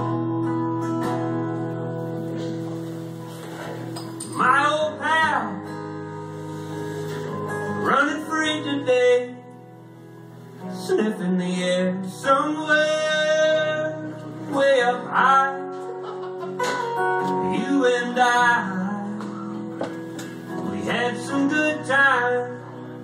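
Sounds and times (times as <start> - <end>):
strummed acoustic guitar: 0.0 - 23.0
man singing: 4.3 - 5.7, 7.7 - 9.7, 10.6 - 16.1, 17.2 - 23.0.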